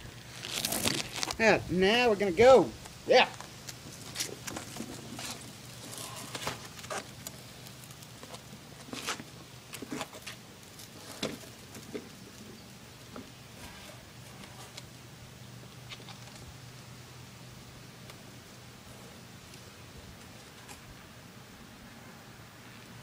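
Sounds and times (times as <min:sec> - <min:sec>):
wheelchair wheels crunching on grit: 0:00.0 - 0:15.0, 0:18.1 - 0:21.0.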